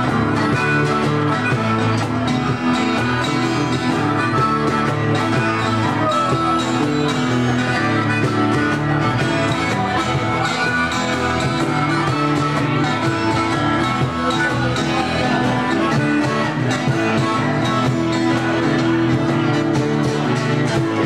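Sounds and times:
harmonica: 0:00.0 - 0:21.0
live blues-rock band: 0:00.0 - 0:21.0.

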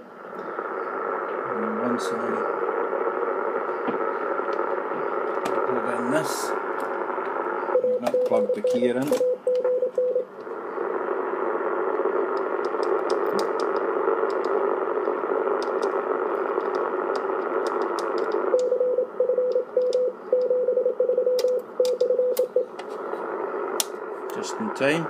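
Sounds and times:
radio receiver hiss: 0:00.0 - 0:20.5, 0:21.5 - 0:25.0
morse code tone: 0:07.6 - 0:10.3, 0:18.5 - 0:22.8.

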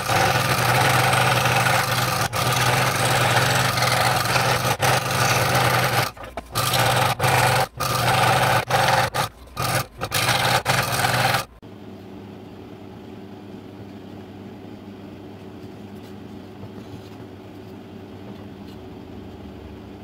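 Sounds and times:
scroll saw cutting wood: 0:00.0 - 0:11.6.

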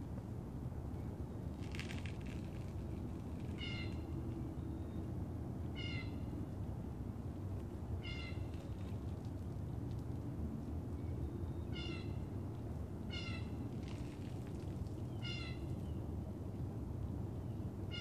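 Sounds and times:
low background rumble: 0:00.0 - 0:18.0
animal high-pitched calls: 0:08.0 - 0:08.5.

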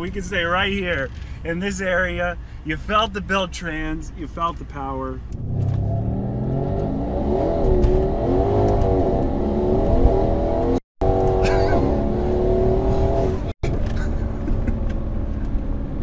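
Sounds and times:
car engine at full throttle: 0:05.3 - 0:16.0.

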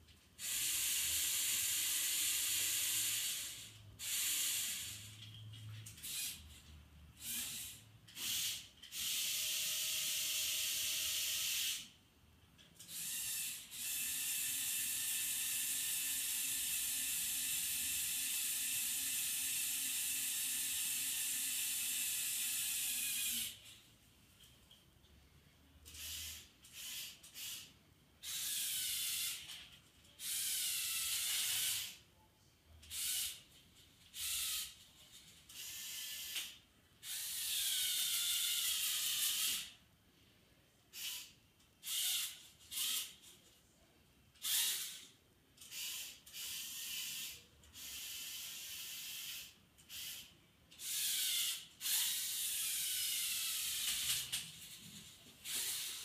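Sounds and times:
small electric motors whirring: 0:00.4 - 0:11.9, 0:12.8 - 0:23.8, 0:25.8 - 0:32.0, 0:32.8 - 0:39.8, 0:40.9 - 0:43.3, 0:44.4 - 0:56.0.

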